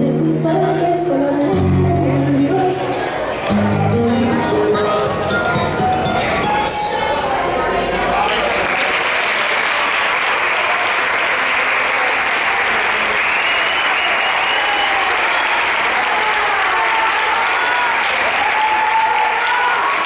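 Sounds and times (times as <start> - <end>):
audience applauding: 7.9 - 20.0.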